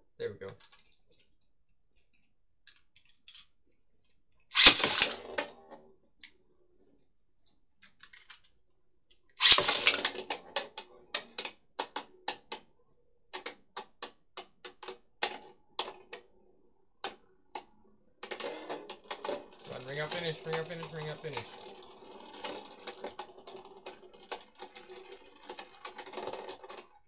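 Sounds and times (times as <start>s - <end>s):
spinning tops rattling: 4.6s - 5.4s, 9.4s - 10.8s, 18.2s - 27.0s.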